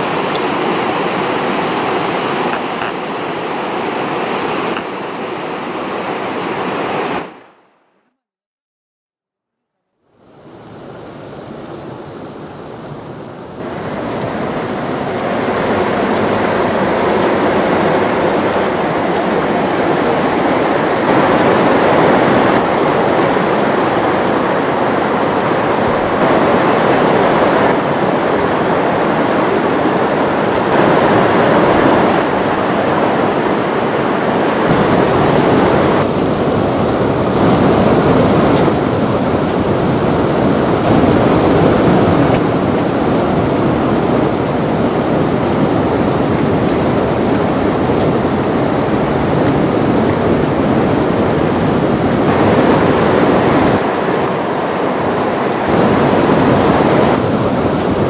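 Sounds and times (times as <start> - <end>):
river flowing over rocks: 0.0 - 7.6, 13.6 - 36.2, 51.9 - 57.3.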